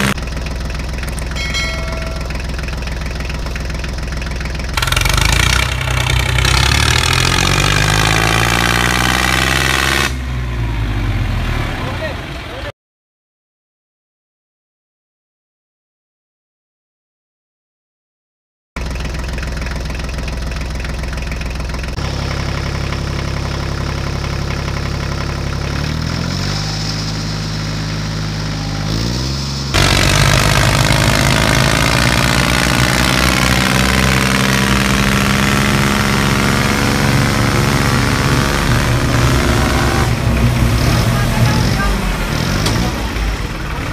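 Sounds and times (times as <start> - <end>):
tractor engine running: 0.0 - 12.7, 18.8 - 43.9.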